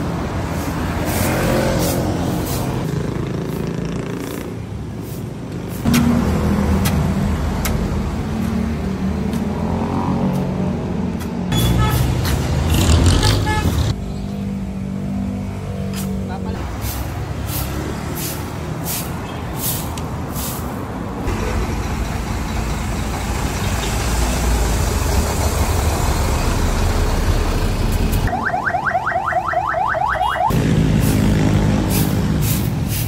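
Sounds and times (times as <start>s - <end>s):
road traffic passing: 0.0s - 33.0s
broom sweeping pavement: 0.3s - 3.6s, 4.2s - 6.0s, 15.9s - 21.1s, 30.9s - 33.0s.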